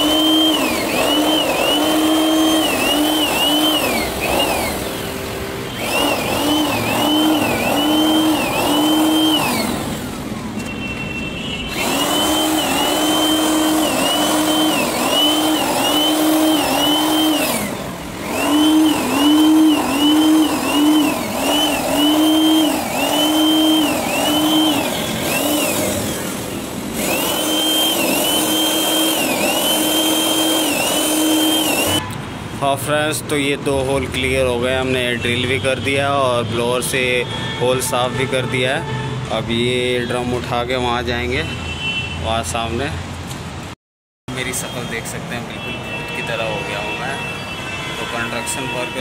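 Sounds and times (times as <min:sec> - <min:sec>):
hammer drill boring into concrete: 0:00.0 - 0:05.0, 0:05.8 - 0:10.0, 0:11.7 - 0:32.0.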